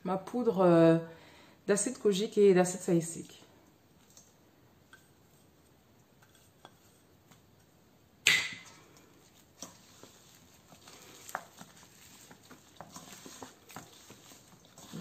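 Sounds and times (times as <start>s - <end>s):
hand kneading paste in bowl: 8.9s - 15.0s.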